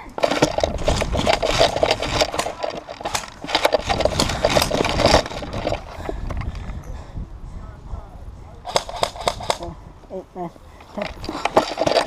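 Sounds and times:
gear and rifle rattling: 0.0s - 6.8s, 8.6s - 9.7s, 10.8s - 12.0s.

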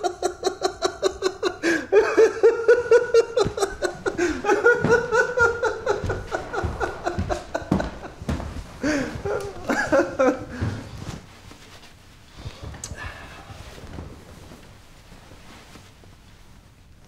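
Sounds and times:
man laughing: 0.0s - 10.7s.

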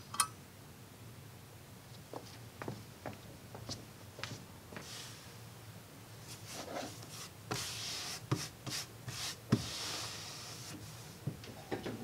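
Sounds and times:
light rubbing and brushing: 6.2s - 11.2s.

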